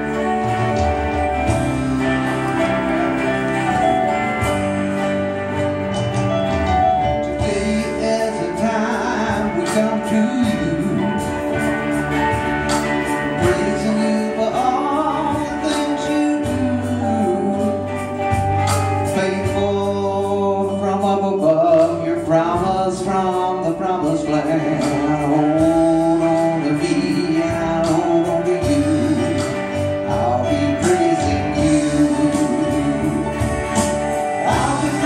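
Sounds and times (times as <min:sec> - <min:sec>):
electric guitar and band: 0:00.0 - 0:35.0
man singing: 0:07.0 - 0:35.0.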